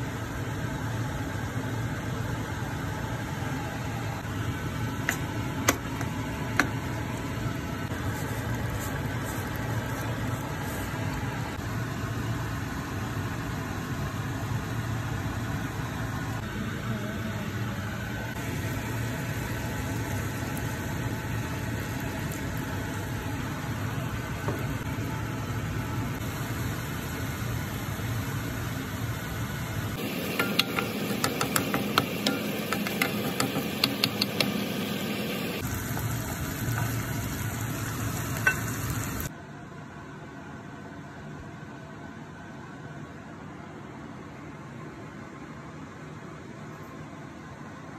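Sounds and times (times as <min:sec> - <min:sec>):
prawns sizzling in a pan: 0:07.8 - 0:11.6, 0:18.4 - 0:39.3.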